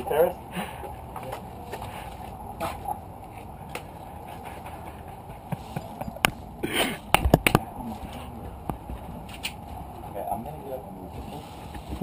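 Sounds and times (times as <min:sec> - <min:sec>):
outdoor background hiss: 0:00.0 - 0:12.0
sharp clicks and knocks: 0:07.1 - 0:07.7.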